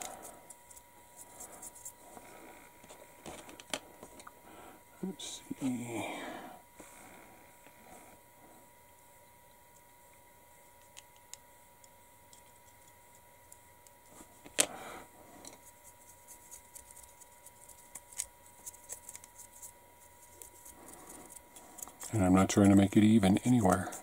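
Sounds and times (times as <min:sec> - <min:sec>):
pencil and brush scratching: 0:00.0 - 0:02.1, 0:15.6 - 0:24.0.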